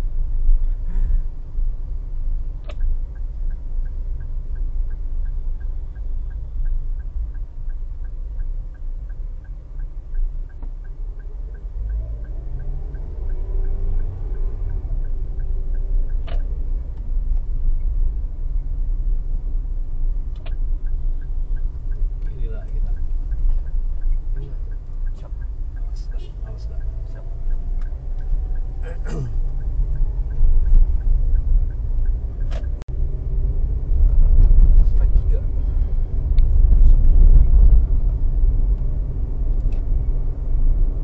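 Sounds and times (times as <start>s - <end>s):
car engine and road rumble: 0.0s - 41.0s
light regular ticking: 1.5s - 32.9s.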